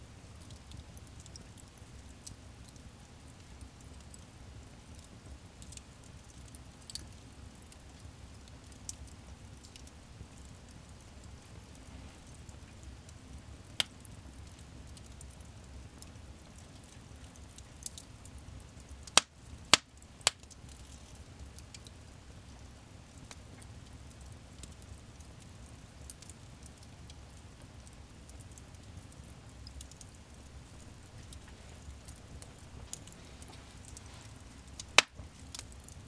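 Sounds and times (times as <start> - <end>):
fire rustling and crackling: 0.0 - 36.0
loud fire pops: 34.8 - 35.3.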